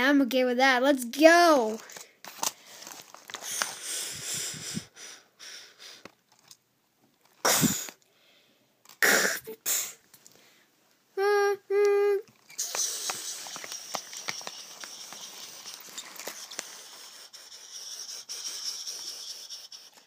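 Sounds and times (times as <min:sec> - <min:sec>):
mouth hissing puffs: 0:03.4 - 0:06.1, 0:07.4 - 0:08.0, 0:09.0 - 0:10.1, 0:12.5 - 0:20.0
person hooting with mouth: 0:11.2 - 0:13.4.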